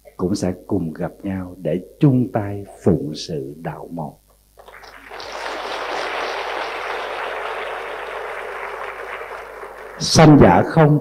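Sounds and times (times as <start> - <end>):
audience applauding: 4.6 - 10.8.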